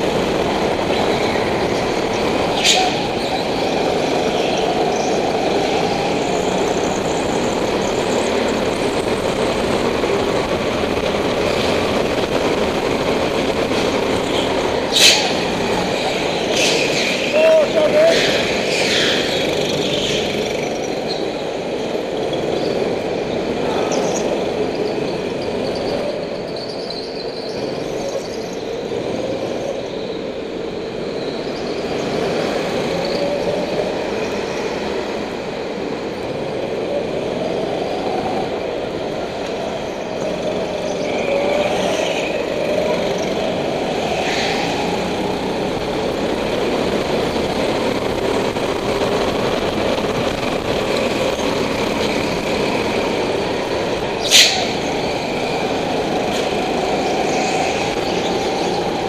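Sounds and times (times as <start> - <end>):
high-pitched tyre squeals: 0.7 - 9.8, 13.2 - 34.9, 39.4 - 49.5, 51.0 - 59.0
go-kart engine running: 5.9 - 30.1, 39.5 - 59.0.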